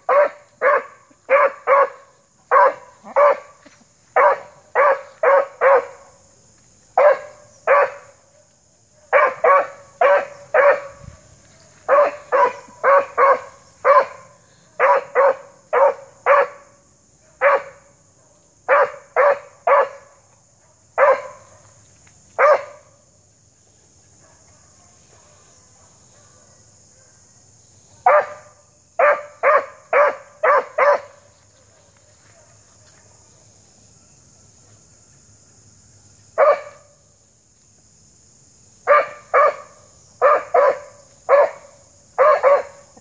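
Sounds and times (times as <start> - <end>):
dog barking: 0.0 - 3.6, 4.2 - 6.2, 7.0 - 21.7, 22.4 - 22.9, 24.2 - 27.3, 28.0 - 32.5, 36.4 - 37.0, 38.8 - 43.0.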